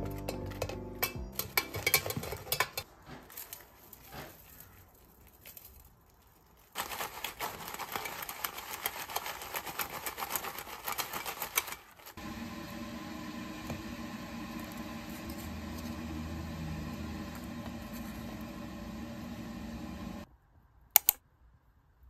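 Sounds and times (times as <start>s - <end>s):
dish rattling when shaken: 0.0s - 2.8s.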